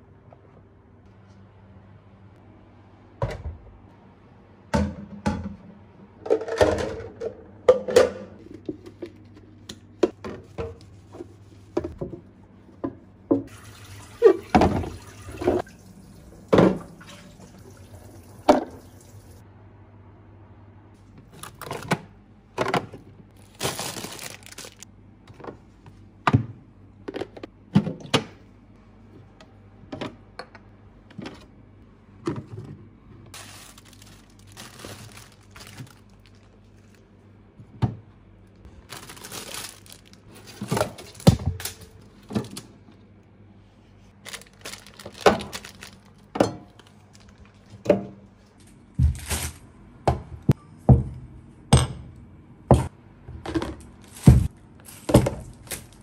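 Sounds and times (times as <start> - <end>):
plastic containers clattering: 33.4 - 36.5, 44.3 - 48.0.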